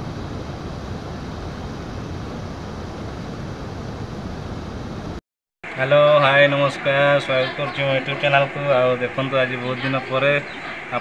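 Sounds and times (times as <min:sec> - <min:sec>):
river flowing: 0:04.7 - 0:11.0.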